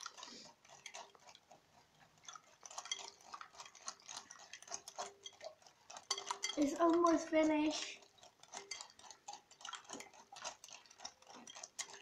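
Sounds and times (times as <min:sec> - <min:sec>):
utensil stirring in glass bowl: 0:00.0 - 0:12.0.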